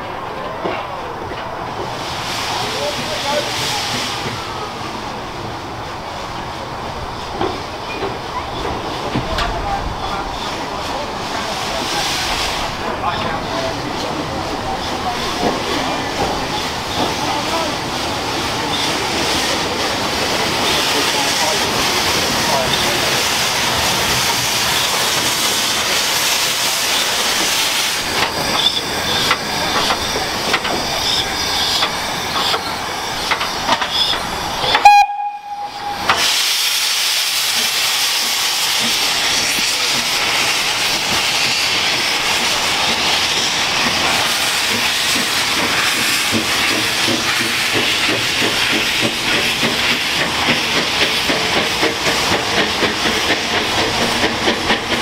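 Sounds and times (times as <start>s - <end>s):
steam engine hissing: 1.0s - 55.0s
steam whistle blast: 34.7s - 36.4s
steam engine rhythmic beat: 37.5s - 55.0s.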